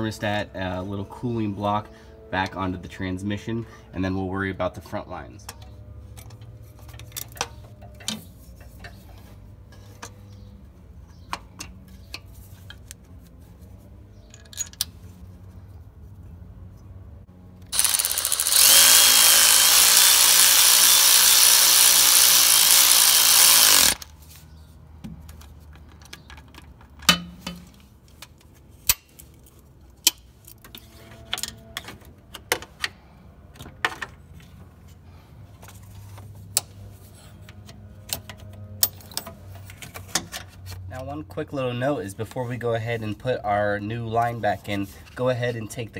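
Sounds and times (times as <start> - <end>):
hand tools clicking and knocking: 17.7 - 24.0
power ratchet running: 17.7 - 24.1.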